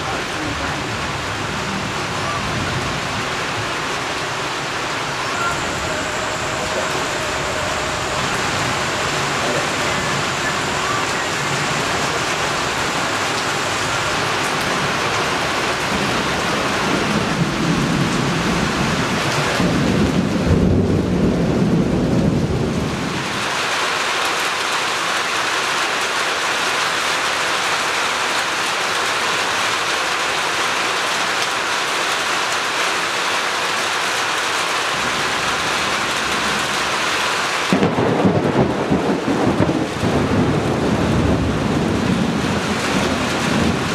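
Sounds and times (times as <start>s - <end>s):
heavy rain: 0.0s - 43.9s
thunder rumbling: 0.2s - 23.5s, 37.6s - 43.9s.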